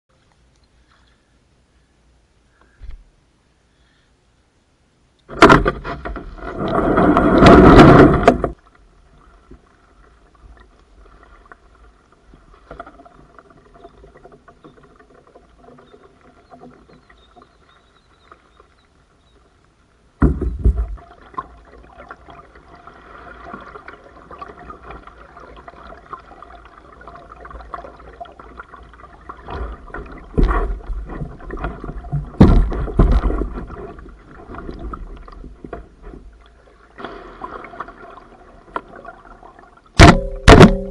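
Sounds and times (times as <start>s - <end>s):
kayak paddle strokes: 5.3s - 19.5s, 20.2s - 39.4s.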